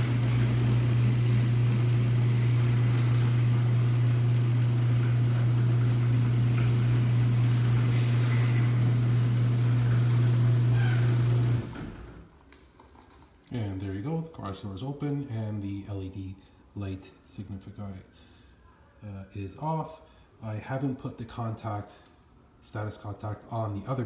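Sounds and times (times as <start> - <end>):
garage door opener motor hum: 0.0 - 12.4.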